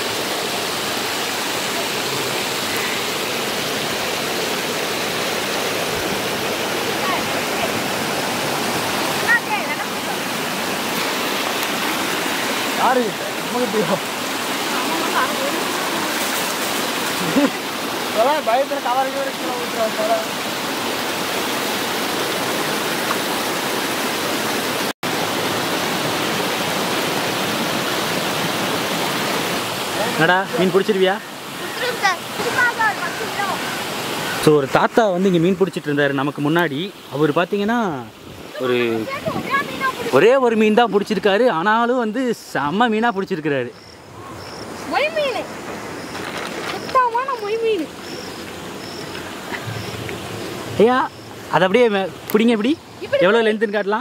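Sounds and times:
stream running over stones: 0.0 - 54.0.

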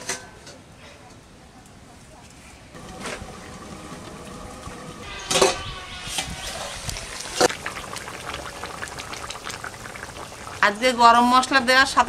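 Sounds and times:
curry bubbling and simmering: 2.8 - 5.2, 6.3 - 11.5.

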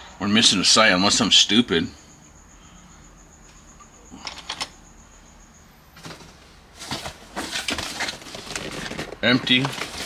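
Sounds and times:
faint high-pitched whine: 0.0 - 10.0
plastic packaging rustling: 6.0 - 10.0.

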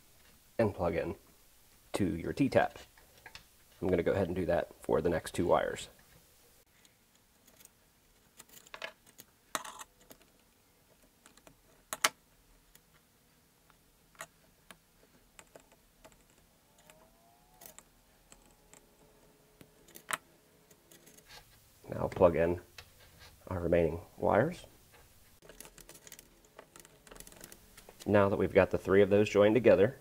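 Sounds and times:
wire handling: 6.8 - 23.5, 24.8 - 28.1.

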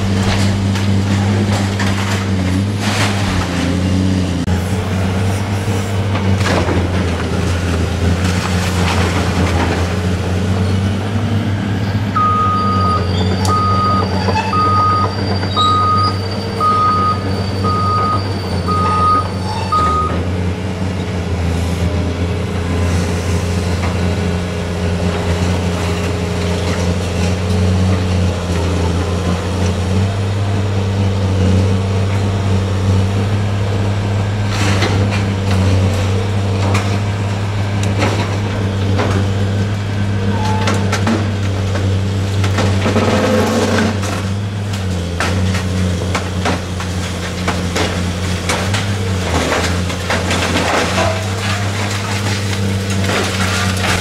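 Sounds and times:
debris breaking knocks: 0.0 - 3.9, 6.1 - 10.2, 40.6 - 54.0
excavator diesel engine running: 0.0 - 54.0
backup alarm beeping: 12.2 - 20.2.

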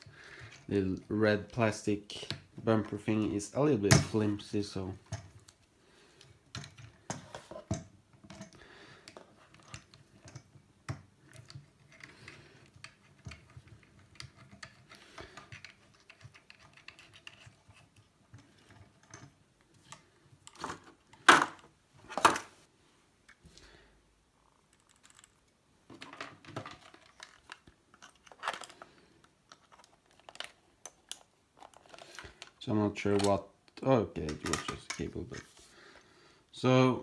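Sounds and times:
plastic clicks and rattles: 6.2 - 21.6, 24.6 - 35.3.

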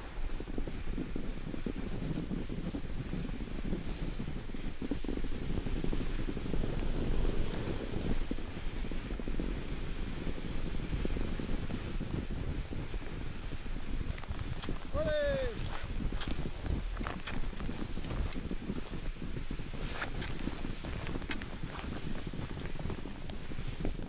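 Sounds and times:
wind buffeting the microphone: 0.0 - 24.0.

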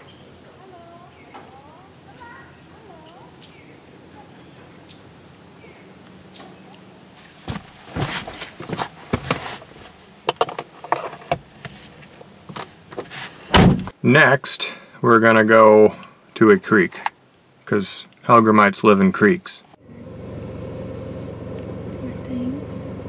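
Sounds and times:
insects chirping: 0.0 - 7.8
person climbing into car seat: 7.2 - 13.9
rustling knocks and clicks: 7.4 - 13.9.

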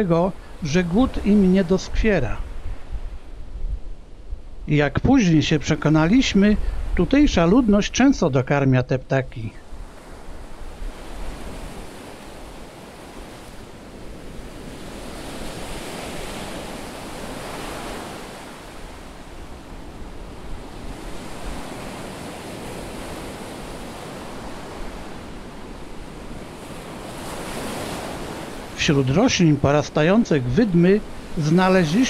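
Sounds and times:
ocean surf on beach: 0.0 - 32.0
wind rumbling on microphone: 2.3 - 5.2, 6.0 - 7.7, 9.6 - 28.8.

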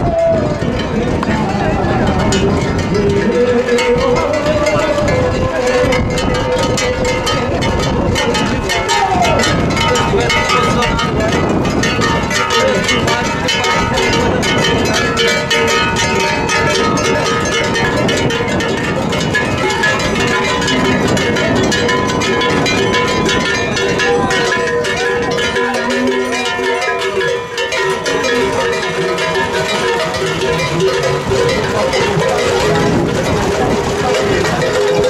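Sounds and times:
crowd voices: 0.0 - 35.0
rhythmic metallic clanking: 0.0 - 35.0
wavering calls: 12.0 - 35.0.

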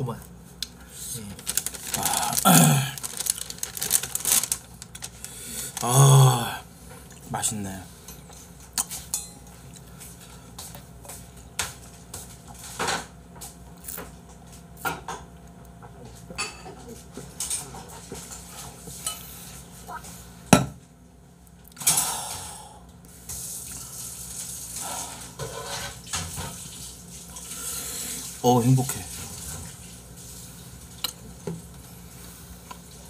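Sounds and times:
dishes and cutlery clinking: 8.0 - 9.6, 16.3 - 18.3.

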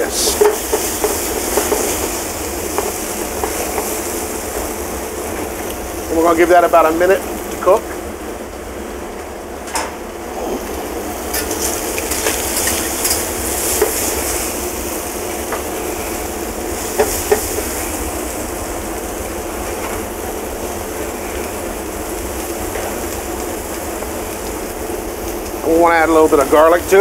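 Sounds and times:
shrimp sizzling in oil: 0.0 - 8.0, 10.6 - 27.0
stirring clicks and scrapes: 0.2 - 5.8, 11.3 - 14.5.

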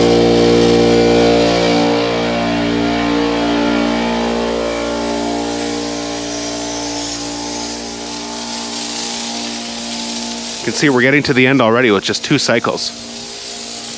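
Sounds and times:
air compressor running: 0.0 - 13.9
hiss: 4.8 - 13.9.

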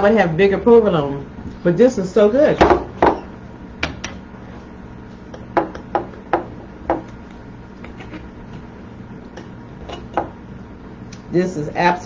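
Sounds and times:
knife and fork clinking on a plate: 9.8 - 10.3.

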